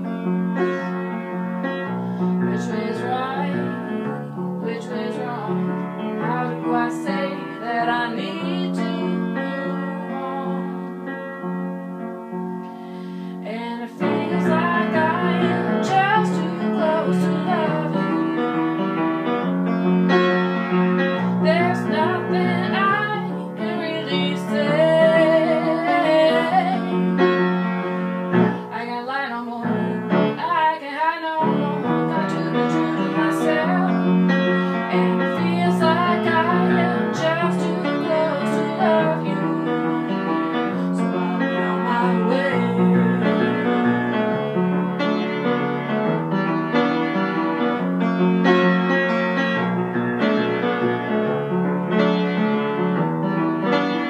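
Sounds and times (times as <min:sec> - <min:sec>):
upright piano chords: 0:00.0 - 0:54.0
woman singing: 0:02.4 - 0:11.0, 0:13.4 - 0:19.0, 0:21.2 - 0:27.5, 0:28.5 - 0:44.3.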